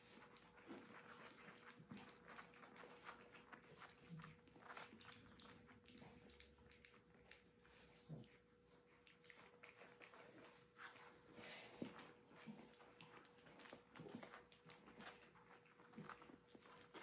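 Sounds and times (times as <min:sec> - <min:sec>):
faint steady hum: 0:00.0 - 0:17.0
puppies licking wet food: 0:00.0 - 0:17.0.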